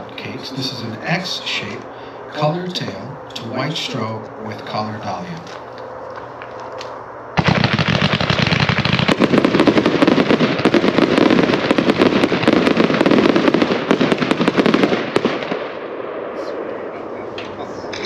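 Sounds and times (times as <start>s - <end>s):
fireworks cake firing: 7.4s - 15.8s
rapid shots and crackle: 7.4s - 15.9s.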